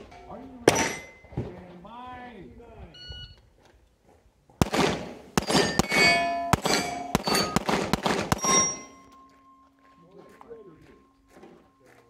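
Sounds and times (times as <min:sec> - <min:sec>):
steel plates ringing: 0:00.0 - 0:01.3, 0:05.4 - 0:07.7, 0:08.3 - 0:11.9
handgun shots: 0:04.6 - 0:09.0.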